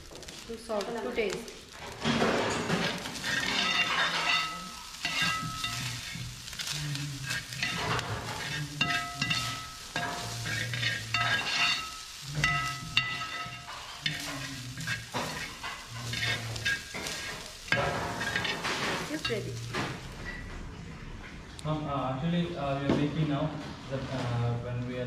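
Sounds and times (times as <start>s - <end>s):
frying sizzle: 0.0s - 25.0s
metal spoon scraping a pan: 1.7s - 20.4s.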